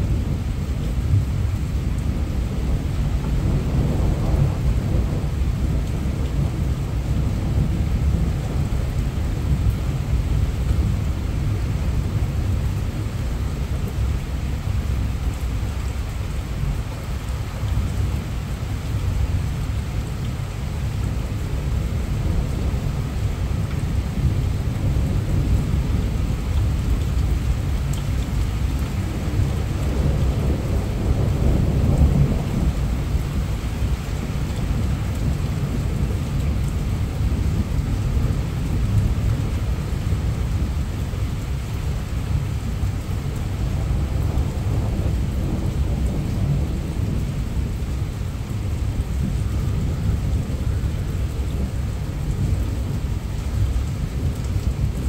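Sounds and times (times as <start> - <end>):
thunder rumbling: 0.0 - 14.0, 21.4 - 55.0
heavy rain falling: 0.0 - 55.0.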